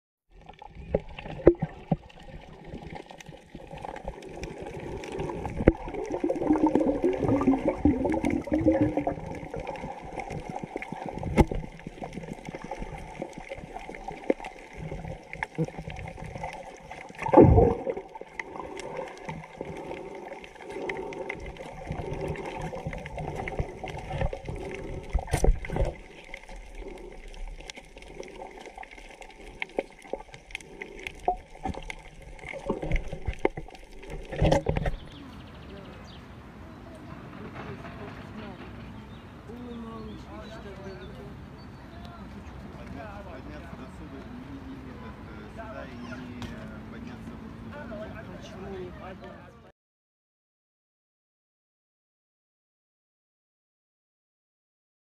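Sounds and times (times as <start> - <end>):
water gurgling underwater: 0.3 - 35.6
loud water burst: 1.0 - 34.9.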